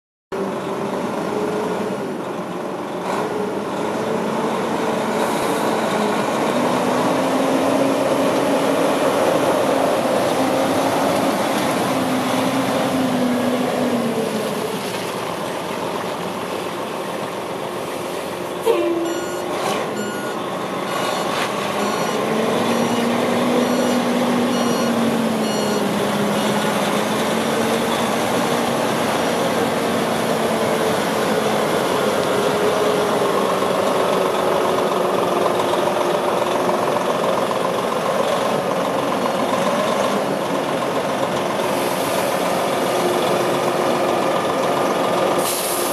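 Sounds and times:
truck diesel engine: 0.3s - 45.9s
reversing alarm beeping: 18.7s - 26.6s.

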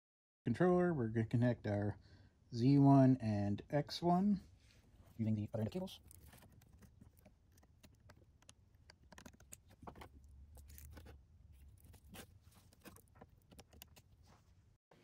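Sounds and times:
cable connectors clicking and scraping: 5.5s - 14.5s.

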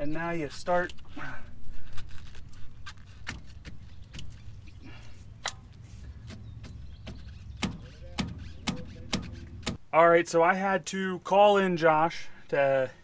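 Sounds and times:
screwdriver scraping metal seal: 7.2s - 9.8s.

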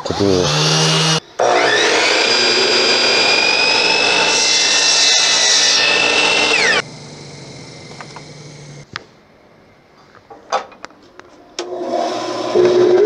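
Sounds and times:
power tool motor whining: 0.0s - 8.9s
low hum: 5.8s - 8.9s.

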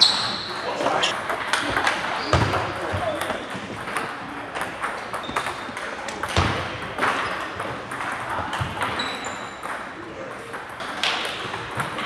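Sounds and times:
table tennis balls clicking: 3.2s - 12.0s.

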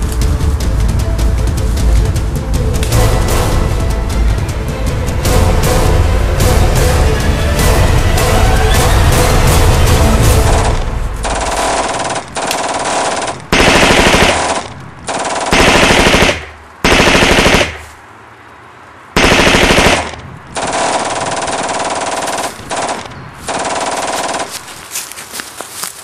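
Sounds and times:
automatic rifle fire: 10.4s - 17.9s, 19.2s - 24.6s.

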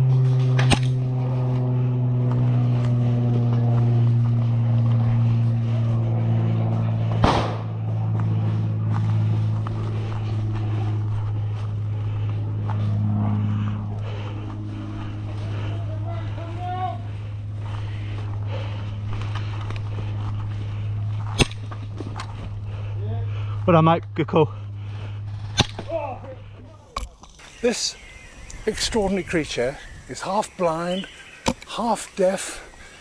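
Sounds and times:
steady low hum: 0.0s - 33.0s
loud sharp crack: 7.2s - 7.7s.

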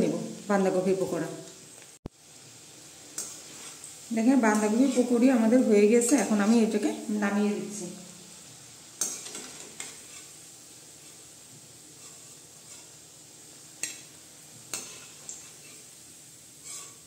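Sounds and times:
food sizzling in hot oil: 0.0s - 17.0s
metal spatula scraping pan: 3.2s - 6.7s, 9.0s - 10.4s, 11.9s - 13.0s, 14.7s - 15.9s, 16.6s - 17.0s.

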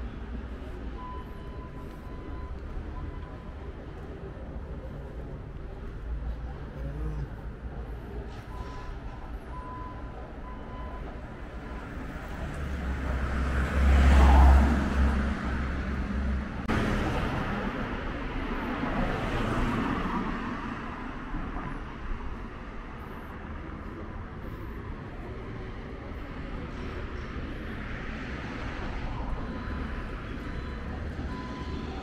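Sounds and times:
vehicles driving past: 0.0s - 32.0s.

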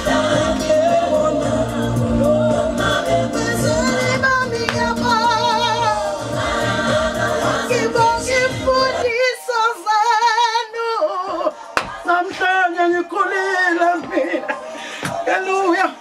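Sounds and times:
backing music with bass line: 0.0s - 9.2s
woman singing with vibrato: 0.0s - 14.5s.

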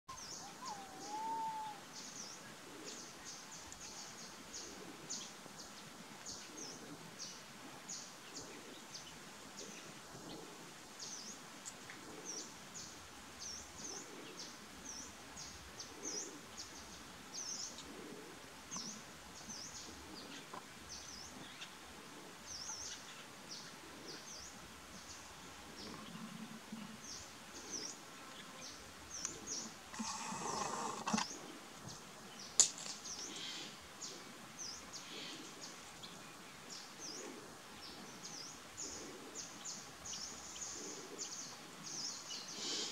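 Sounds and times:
small birds chirping: 22.4s - 42.9s.

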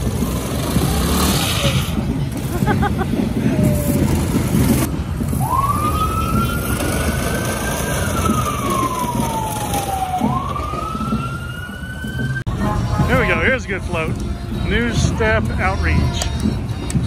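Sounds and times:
vehicle engines rumbling: 0.0s - 17.0s
fire engine siren wailing: 4.6s - 13.2s.

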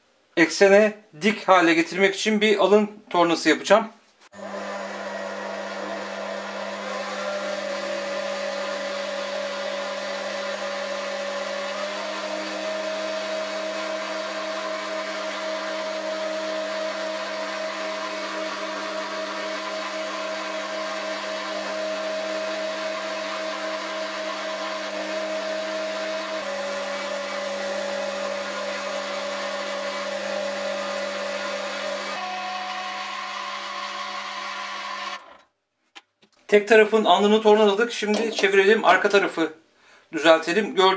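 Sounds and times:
lathe motor whining: 4.4s - 35.5s.

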